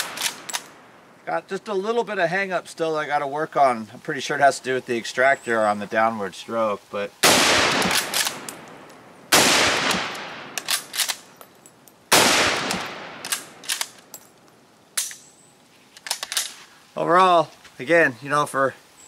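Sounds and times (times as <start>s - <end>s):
metallic clacks of rifle bolt: 0.0s - 0.8s, 7.7s - 9.0s, 9.9s - 12.0s, 12.6s - 16.7s
rifle shots echoing: 0.0s - 0.8s, 7.2s - 11.2s, 12.1s - 14.0s.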